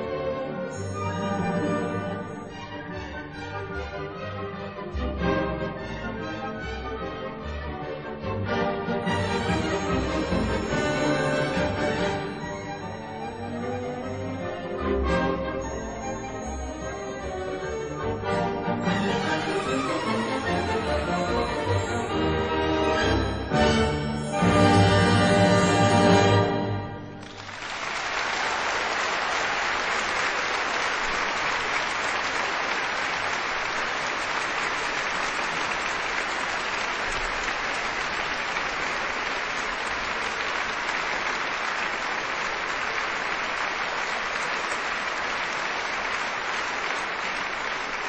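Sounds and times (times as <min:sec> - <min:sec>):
music: 0:00.0 - 0:27.6
audience applause: 0:09.1 - 0:23.4, 0:27.1 - 0:48.0.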